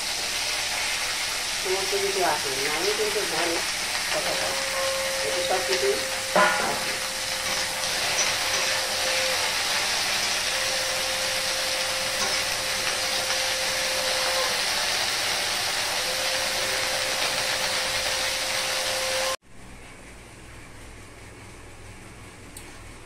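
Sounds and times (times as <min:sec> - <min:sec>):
okra sizzling in hot oil: 0:00.0 - 0:19.4.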